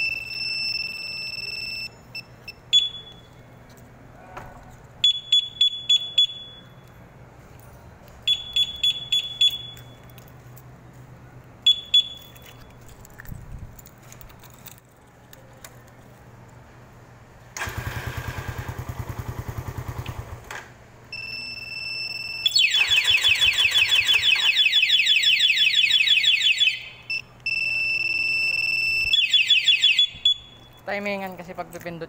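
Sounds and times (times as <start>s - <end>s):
high beep: 0.0s - 3.4s, 21.2s - 23.1s, 27.0s - 29.1s
motorcycle alarm siren warbling: 21.2s - 30.7s.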